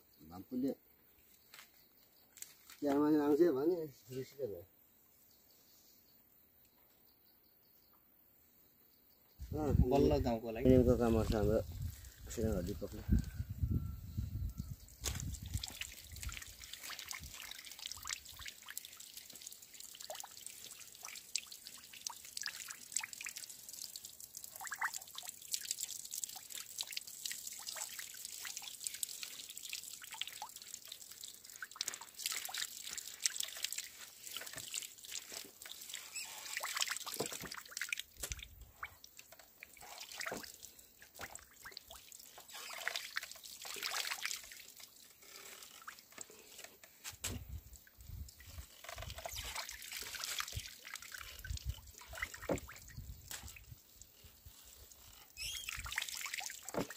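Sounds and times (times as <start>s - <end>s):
oil trickling and dripping: 9.4s - 56.9s.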